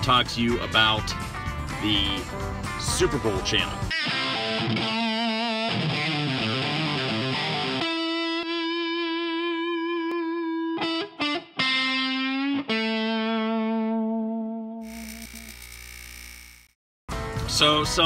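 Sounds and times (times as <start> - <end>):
distorted electric guitar music: 3.8 - 16.6.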